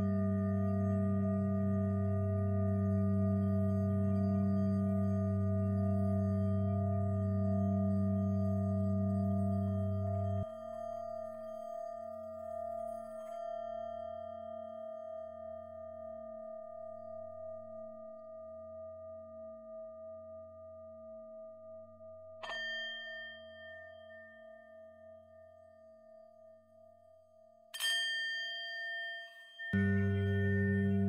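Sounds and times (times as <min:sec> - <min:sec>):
low pulsing drone: 0:00.0 - 0:12.2, 0:29.8 - 0:31.0
singing bowl ringing: 0:00.0 - 0:16.4, 0:22.4 - 0:26.4, 0:27.8 - 0:31.0.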